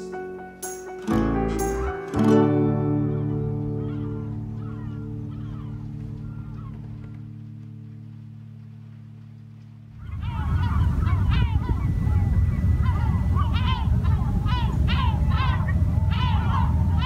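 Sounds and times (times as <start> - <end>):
gulls calling: 2.5 - 17.0
wind rumbling on microphone: 9.1 - 17.0.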